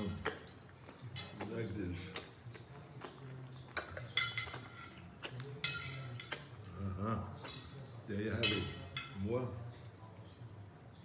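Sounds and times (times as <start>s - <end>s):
cutlery clinking on plate: 3.7s - 6.7s, 8.3s - 9.3s.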